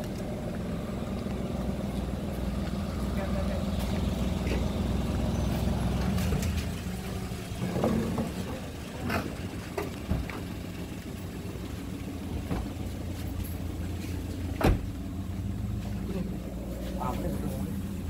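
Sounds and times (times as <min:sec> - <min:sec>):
car engine idling: 0:00.0 - 0:18.0
short knocks and clunks: 0:14.5 - 0:15.1.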